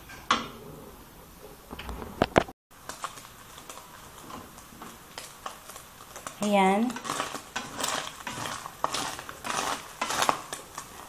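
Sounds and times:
small crackling pops: 2.4 - 11.0
meat sizzling in oil: 2.8 - 11.0
wooden spatula clacking on pan: 2.9 - 10.9.

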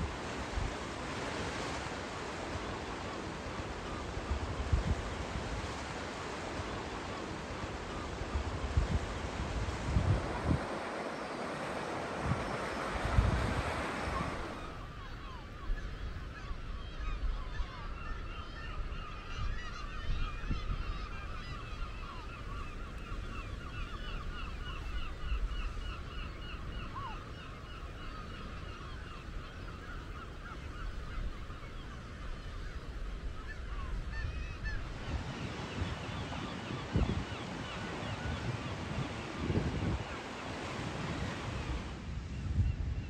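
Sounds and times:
wind rumble on microphone: 0.0 - 43.0
seabird colony calling: 10.6 - 41.3.

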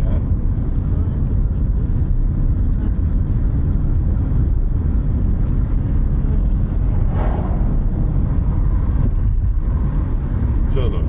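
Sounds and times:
car cabin road and engine rumble: 0.0 - 11.0.

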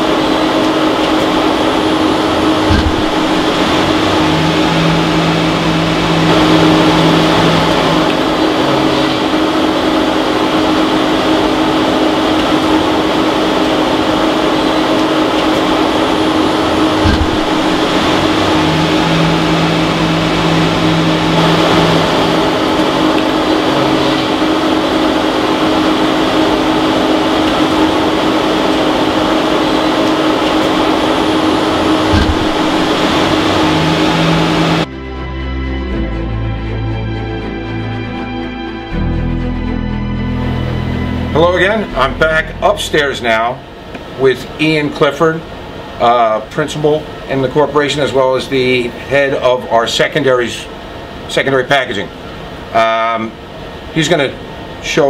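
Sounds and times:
lathe machine whirring: 0.0 - 35.2, 35.8 - 55.0
low machine tone: 0.0 - 55.0
dull knocks: 2.6 - 4.7, 17.0 - 19.4, 32.0 - 34.8.

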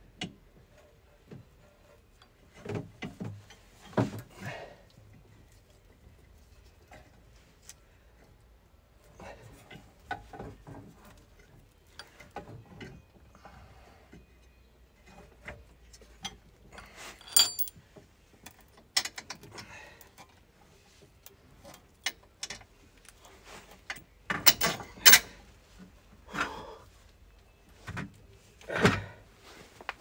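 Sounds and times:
metal clinks and knocks: 16.2 - 17.8, 23.9 - 25.4
metal clanks: 16.3 - 17.7, 24.3 - 25.4
metal piece ringing: 17.3 - 17.7.

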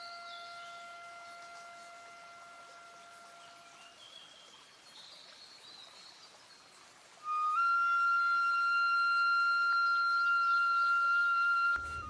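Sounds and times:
flute long held note: 0.0 - 4.0, 7.2 - 12.0.

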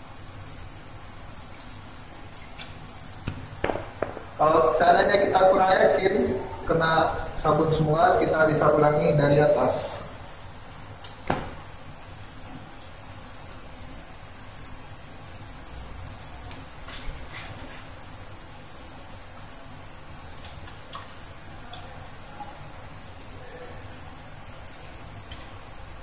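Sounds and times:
tap water running into sink: 1.5 - 8.2, 10.9 - 14.3.

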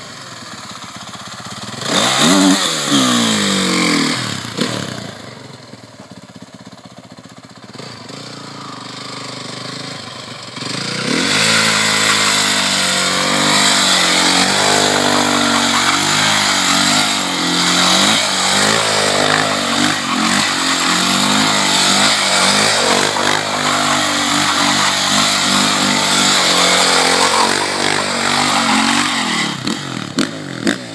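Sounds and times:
dirt bike engine revving: 0.3 - 5.2, 7.7 - 30.9
tyre spinning on asphalt: 11.1 - 30.2.

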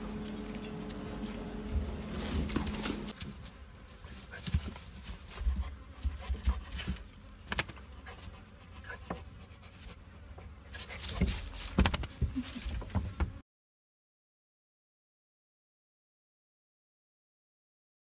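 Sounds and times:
rustling on straw: 0.0 - 12.9
dog panting: 8.0 - 11.3.

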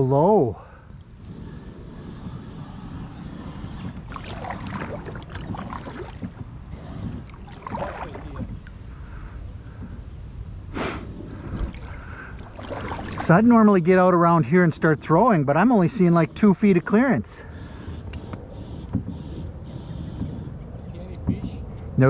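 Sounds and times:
wind on microphone: 0.0 - 22.0
paddle splashing in water: 3.7 - 8.7, 11.3 - 13.6.

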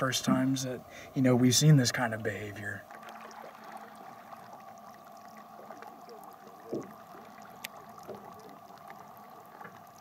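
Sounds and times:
steady hum: 0.0 - 10.0
water sloshing: 2.0 - 10.0.

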